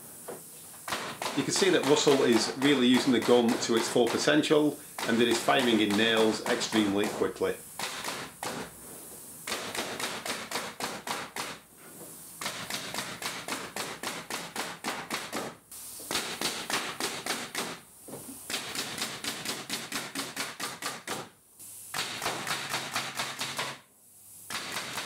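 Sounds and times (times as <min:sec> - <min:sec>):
nail gun shots into timber: 0:00.9 - 0:04.3, 0:05.0 - 0:07.2, 0:07.8 - 0:08.6, 0:09.5 - 0:11.6, 0:12.4 - 0:17.8, 0:18.5 - 0:21.3, 0:21.9 - 0:23.8, 0:24.5 - 0:25.0.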